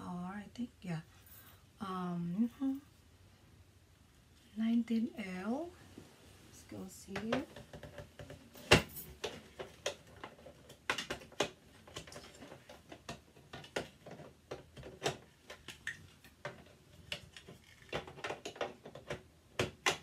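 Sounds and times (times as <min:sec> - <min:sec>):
plastic parts clicking and knocking: 0:07.1 - 0:20.0.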